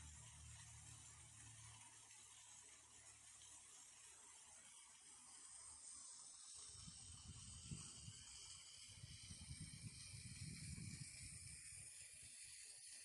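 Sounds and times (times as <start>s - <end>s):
fountain water spraying: 0.0s - 13.0s
low fluttering rumble: 9.0s - 11.9s.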